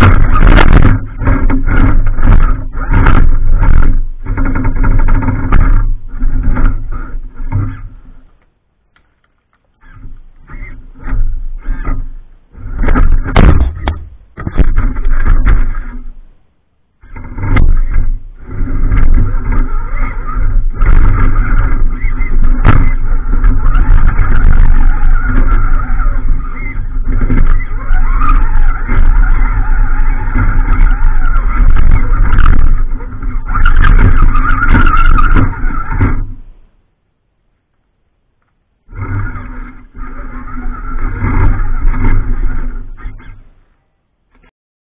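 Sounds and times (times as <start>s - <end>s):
knocks and clunks from rocks: 11.1s - 16.2s.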